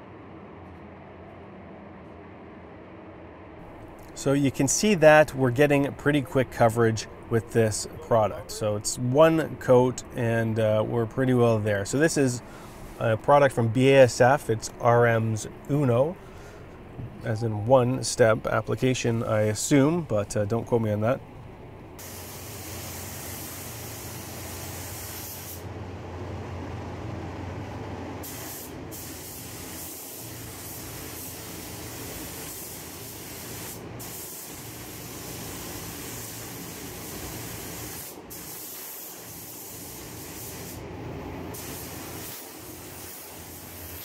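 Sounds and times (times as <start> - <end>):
steady low hum: 0.0 - 44.0
spray gun hissing: 22.0 - 25.7, 28.2 - 40.8, 41.5 - 44.0.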